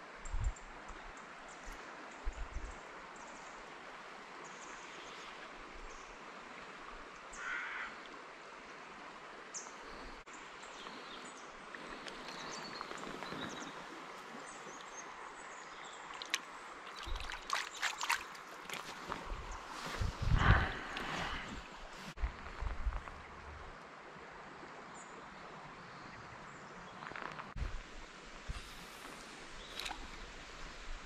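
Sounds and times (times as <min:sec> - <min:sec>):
shallow river flowing: 0:00.0 - 0:31.0
hand splashing in water: 0:16.2 - 0:19.4.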